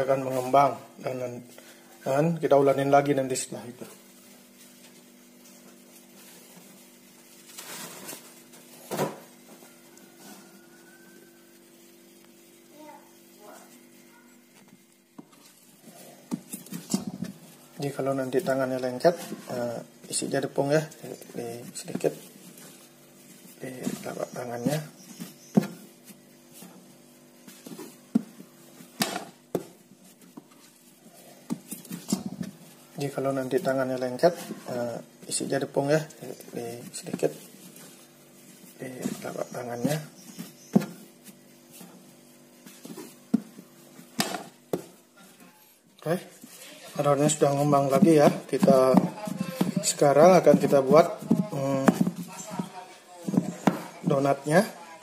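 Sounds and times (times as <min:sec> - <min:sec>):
soft rustle: 0:03.8 - 0:54.3
dough thumps and squishes: 0:11.5 - 0:54.8.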